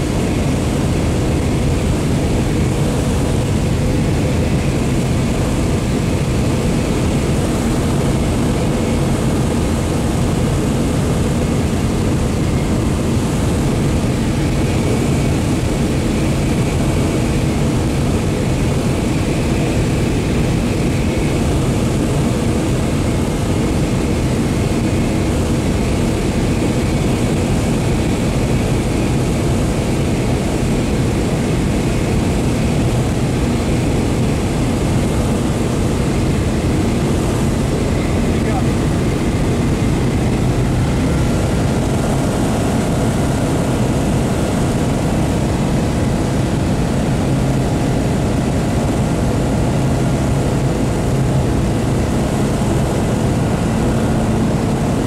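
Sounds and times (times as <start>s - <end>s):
airflow noise over cabin: 0.0s - 55.0s
light aircraft engine and propeller: 0.0s - 55.0s.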